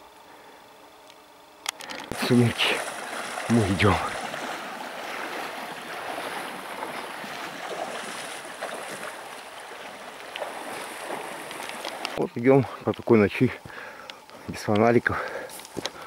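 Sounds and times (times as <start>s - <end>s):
river water rushing: 2.1s - 12.2s
wading splashes: 2.1s - 12.2s.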